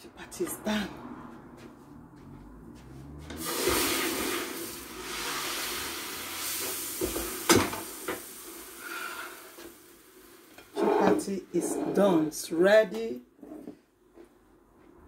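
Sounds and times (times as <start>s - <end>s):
sizzling hiss: 3.4s - 10.9s.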